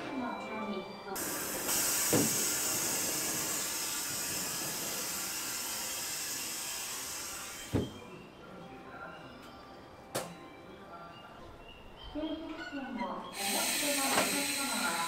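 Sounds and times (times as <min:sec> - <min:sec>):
compressed air hissing: 0:01.2 - 0:07.9, 0:13.4 - 0:15.0.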